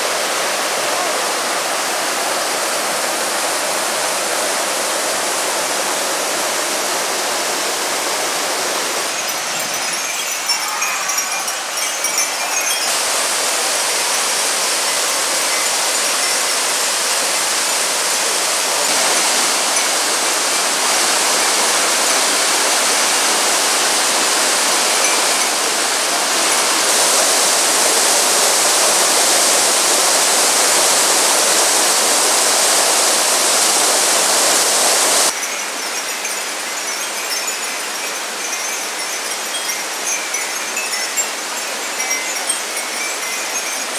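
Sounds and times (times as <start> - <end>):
waterfall rushing: 0.0 - 43.9.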